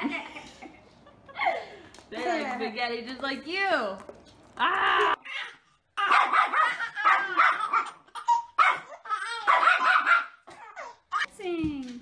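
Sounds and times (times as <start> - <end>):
small dog barking rapidly: 6.0 - 8.0, 8.6 - 10.4.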